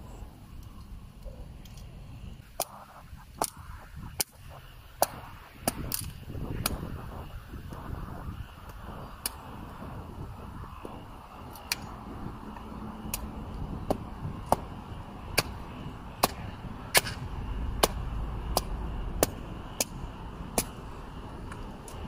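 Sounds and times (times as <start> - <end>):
hatchet chopping firewood: 13.9 - 15.6, 16.2 - 20.8.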